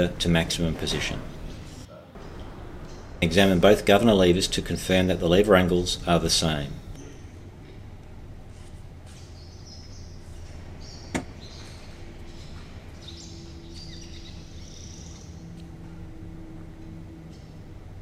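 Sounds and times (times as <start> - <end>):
low background hum: 0.0 - 18.0.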